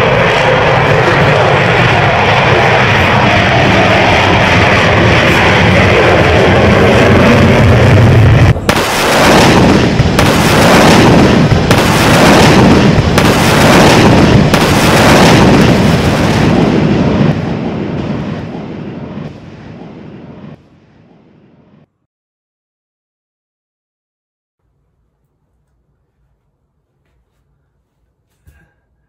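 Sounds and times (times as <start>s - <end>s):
fighter jet roar blasts: 0.0s - 21.9s.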